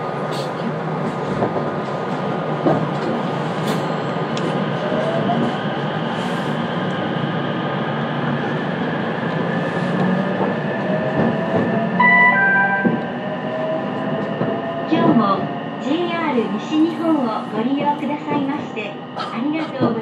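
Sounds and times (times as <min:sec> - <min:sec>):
train wheels rumbling on rail: 0:00.0 - 0:20.0.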